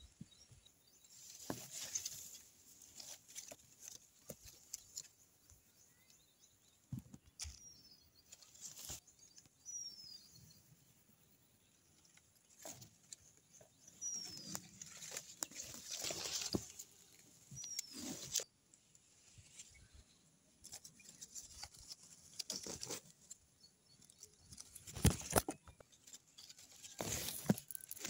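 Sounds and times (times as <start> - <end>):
leaves rustling: 1.1 - 5.5, 7.4 - 9.1, 12.4 - 23.4, 24.2 - 28.0.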